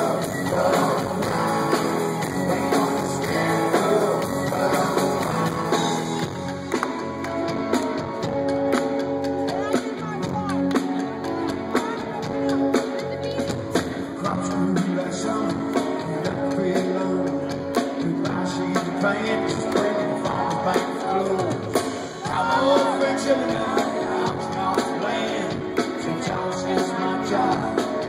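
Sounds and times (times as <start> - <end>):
man singing: 0.0 - 6.5, 13.9 - 28.0
drums: 0.0 - 28.0
electric guitars: 0.0 - 28.0.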